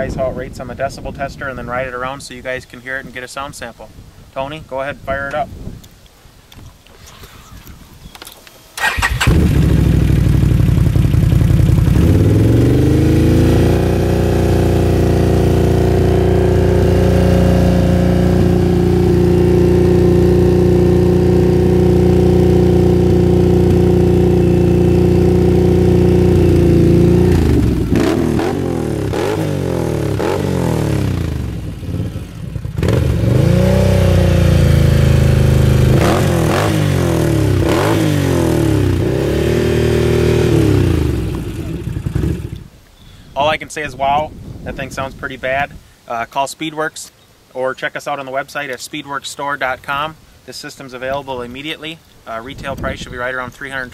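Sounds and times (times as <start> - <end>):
engine revving: 8.8 - 42.7.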